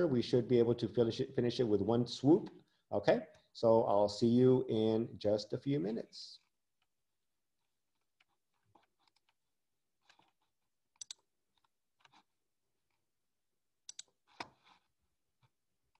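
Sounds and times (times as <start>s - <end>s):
computer keyboard and mouse clicks: 10.0s - 12.2s, 13.8s - 14.7s.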